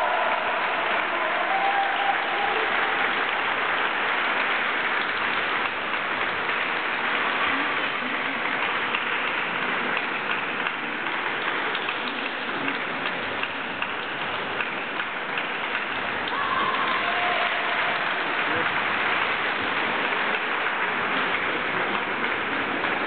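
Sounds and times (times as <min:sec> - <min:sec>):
audience applauding: 0:00.0 - 0:23.0.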